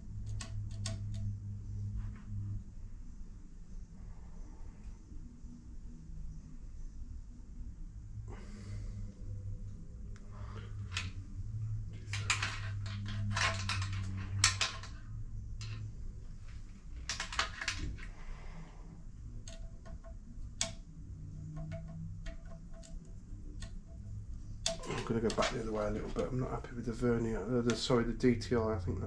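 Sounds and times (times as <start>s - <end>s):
steady low hum: 0.0s - 29.0s
light metallic clicks and clinks: 12.0s - 15.9s, 21.4s - 26.2s.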